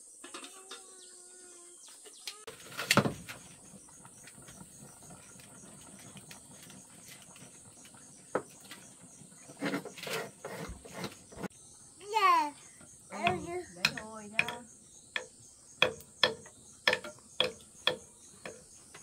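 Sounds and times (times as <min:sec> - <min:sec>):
insects chirring: 0:00.0 - 0:19.0
knocks and clatters: 0:15.2 - 0:19.0.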